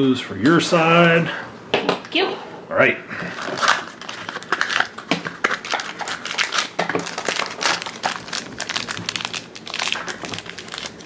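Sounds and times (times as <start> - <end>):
foil packet tearing: 3.4 - 11.0
paper wrapper crinkling: 3.4 - 11.0.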